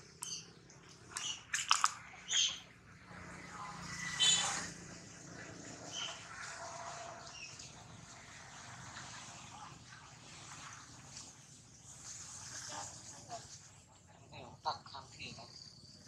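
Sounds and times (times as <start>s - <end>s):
animal chirps and squeaks: 0.1s - 2.8s, 3.7s - 4.7s, 5.9s - 6.3s.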